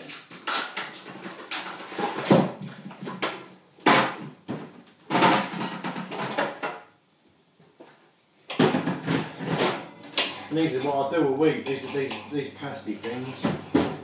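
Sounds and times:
objects knocking on kitchen counter: 2.2 - 6.8, 8.5 - 10.4.

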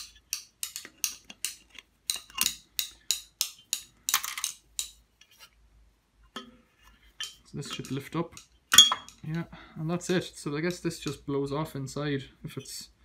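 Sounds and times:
pliers clinking on metal fittings: 0.0 - 5.3, 7.2 - 9.3.

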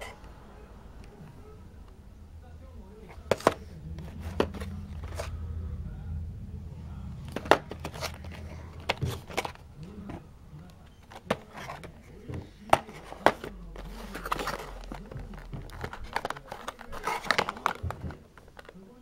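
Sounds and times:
steady low hum: 0.0 - 18.9
cardboard box handled: 7.3 - 10.2, 10.8 - 18.7.

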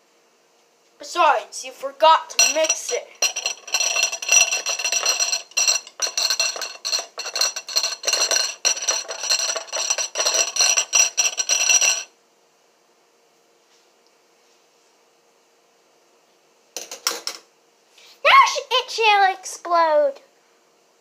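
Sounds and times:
beater clinking against glass bowl: 2.3 - 12.1.

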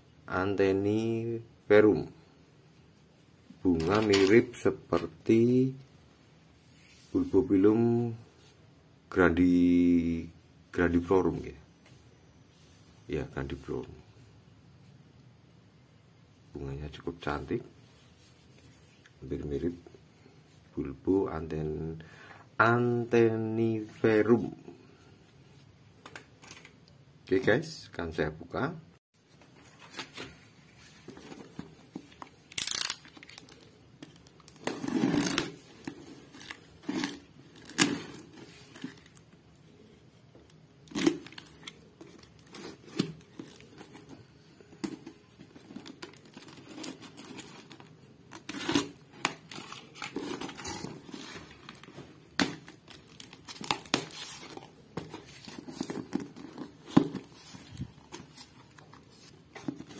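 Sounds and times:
cardboard rustling and scraping: 29.3 - 32.2, 34.5 - 39.2, 40.9 - 59.9
packing tape tearing: 32.4 - 39.2, 45.8 - 54.6.

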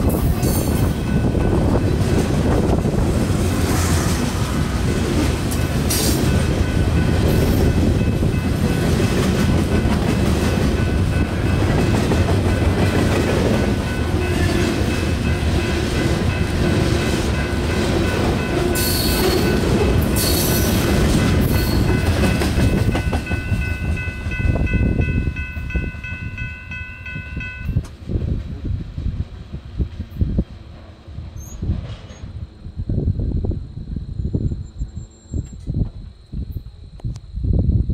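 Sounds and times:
train wheels rumbling on rails: 0.0 - 36.5
high-pitched tones: 5.6 - 27.8.

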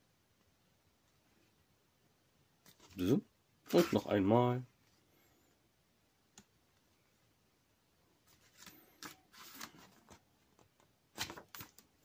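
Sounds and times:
paper pages rustling: 8.2 - 12.0.

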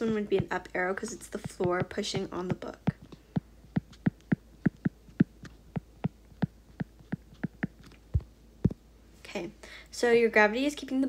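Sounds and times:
dull knock: 1.4 - 8.3
stylus tapping on glass screen: 1.4 - 8.8.

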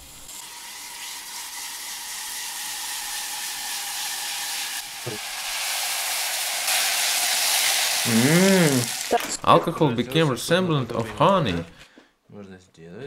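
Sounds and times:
liquid nitrogen boiling with hiss: 0.0 - 9.4.

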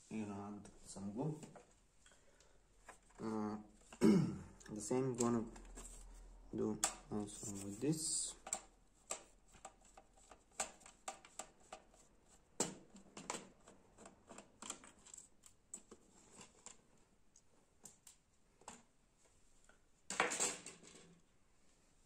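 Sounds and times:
plastic laptop parts clicking: 8.4 - 12.0, 12.6 - 16.8.

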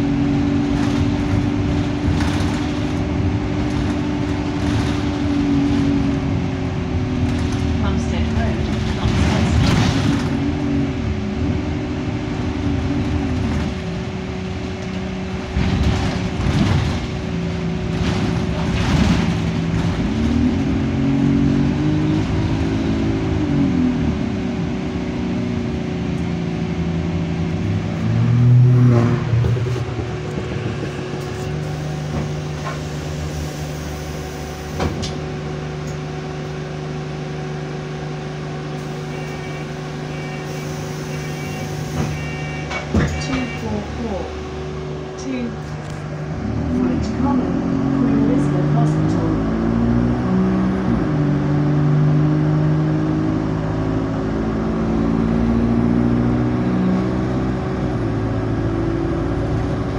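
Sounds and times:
bus diesel engine: 0.0 - 59.9
constant whine: 23.9 - 49.3.

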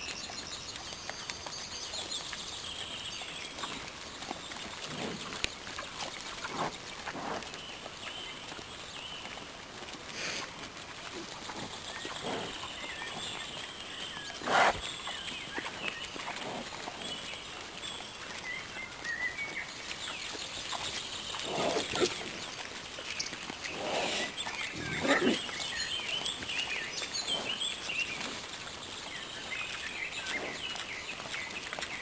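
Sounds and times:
boars and piglets grunting: 4.8 - 5.4, 6.0 - 7.5, 11.1 - 12.7, 14.4 - 14.8, 21.3 - 22.4, 23.6 - 25.6.

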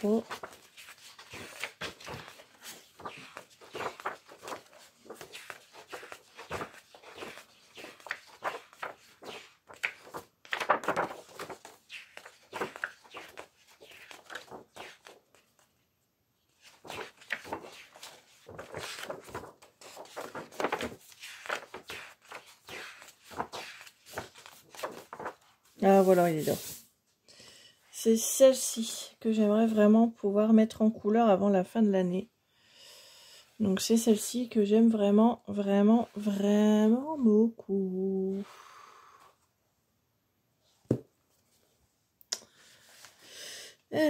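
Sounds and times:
paper pages being turned: 0.0 - 15.7, 16.5 - 26.9.

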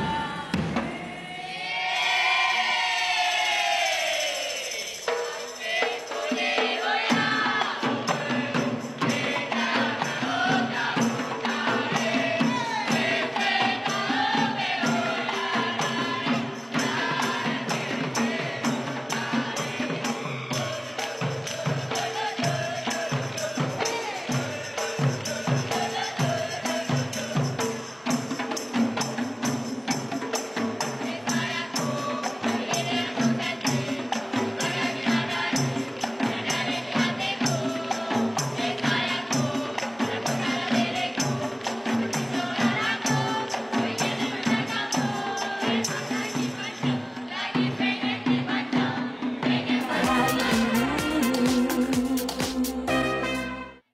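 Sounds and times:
group singing: 0.0 - 53.8
tambourine jingling: 1.0 - 48.0, 49.6 - 53.4
frame drums playing: 49.6 - 53.8.

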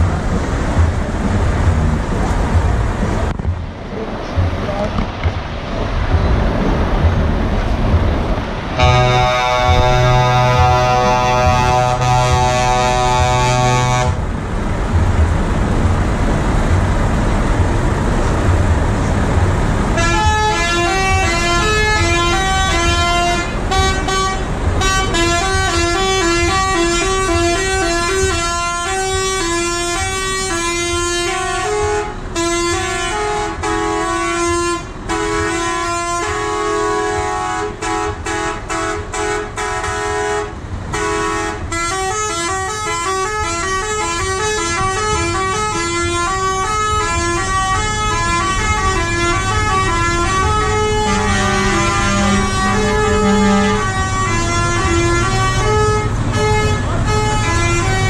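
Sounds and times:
low engine rumble: 0.0 - 58.0
truck air horns: 8.8 - 14.3, 19.9 - 58.0.

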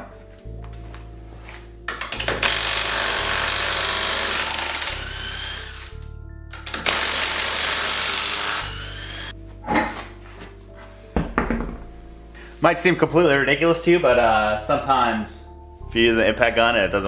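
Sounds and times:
impact wrench hammering: 1.9 - 9.3.

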